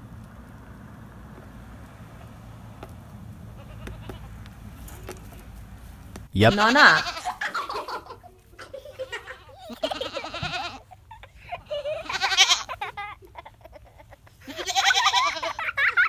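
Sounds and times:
goats bleating: 3.5s - 4.6s, 6.4s - 7.7s, 8.5s - 15.8s.

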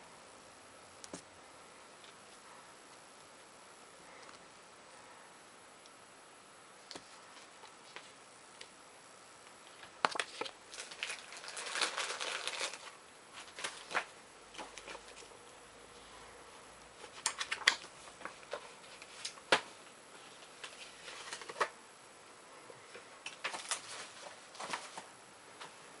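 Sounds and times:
plastic and paper rustling: 9.7s - 15.3s, 17.0s - 21.8s, 22.9s - 25.1s.

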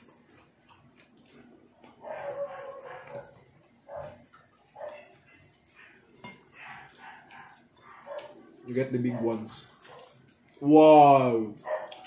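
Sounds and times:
dog barking: 1.9s - 10.2s, 11.6s - 12.0s.

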